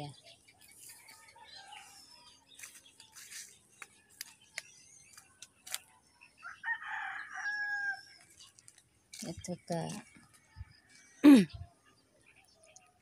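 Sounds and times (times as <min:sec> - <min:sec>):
rooster crowing: 0:06.4 - 0:08.1.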